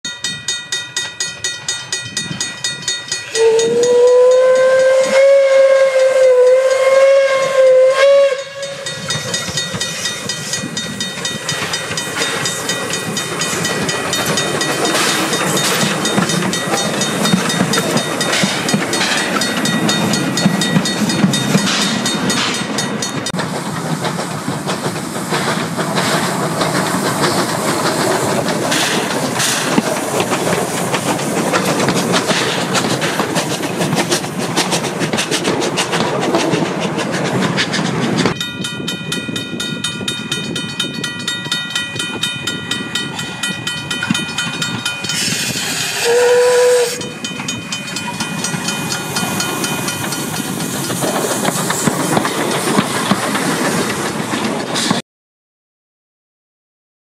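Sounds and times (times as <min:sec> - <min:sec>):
steam locomotive exhaust chuffs: 0:00.1 - 0:55.0
wheels clattering on rails: 0:00.1 - 0:55.0
steam whistle: 0:03.3 - 0:09.0, 0:45.2 - 0:47.2
hissing steam: 0:04.6 - 0:38.3, 0:43.0 - 0:55.0.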